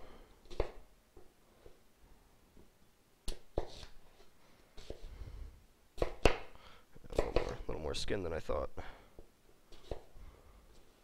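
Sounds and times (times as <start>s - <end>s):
knife chopping on cutting board: 6.0s - 6.5s, 7.1s - 7.5s.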